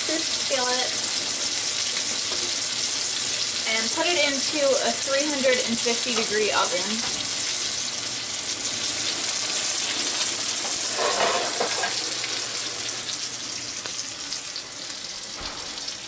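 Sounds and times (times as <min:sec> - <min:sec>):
meat sizzling in a skillet: 0:00.0 - 0:16.0.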